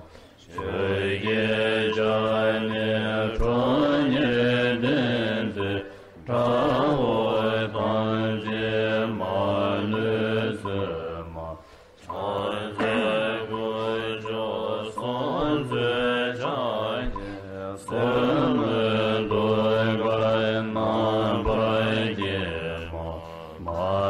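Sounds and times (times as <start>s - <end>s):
melodic chanting: 0.0s - 24.0s.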